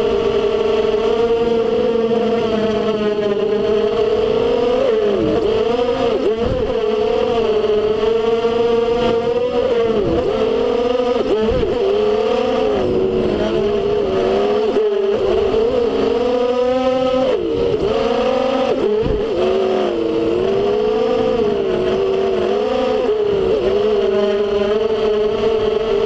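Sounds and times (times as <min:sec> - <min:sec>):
drone motors whining: 0:00.0 - 0:26.0.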